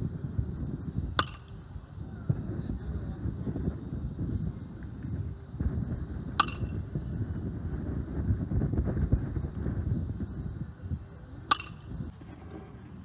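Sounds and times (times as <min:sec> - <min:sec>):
wind rumble on microphone: 0:00.0 - 0:13.0
baseball bat cracking ball: 0:01.1 - 0:01.6, 0:06.3 - 0:06.8, 0:11.5 - 0:12.7.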